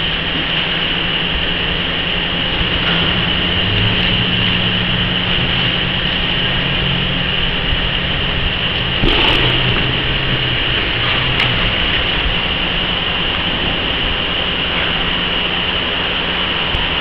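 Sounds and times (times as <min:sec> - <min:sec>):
factory machinery drone: 0:00.0 - 0:17.0.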